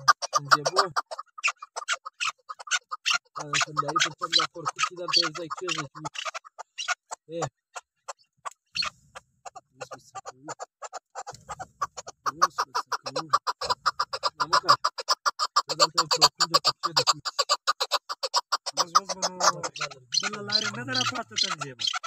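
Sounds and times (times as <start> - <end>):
partridge clucking calls: 0.0 - 22.0.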